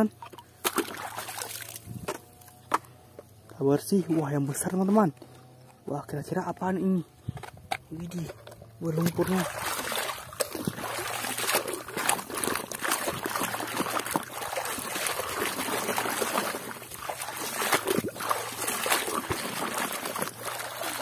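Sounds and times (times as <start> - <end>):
muddy water sloshing and splashing: 0.0 - 3.0, 7.3 - 21.0.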